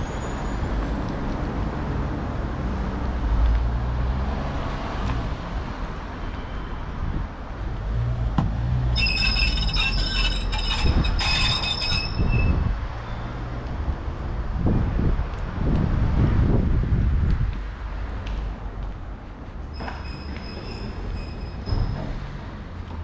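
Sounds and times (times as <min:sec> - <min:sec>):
metal doors squealing on hinges: 0:08.8 - 0:13.3, 0:19.7 - 0:22.4.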